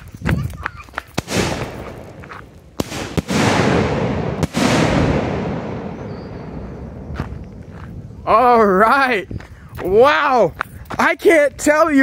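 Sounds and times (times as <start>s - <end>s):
firework bangs with rolling echo: 1.2s - 7.6s.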